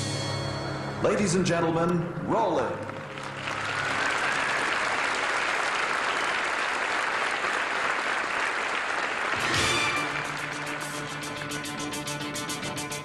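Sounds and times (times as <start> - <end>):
music: 0.0 - 5.1, 9.2 - 13.0
audience applauding: 2.8 - 12.5.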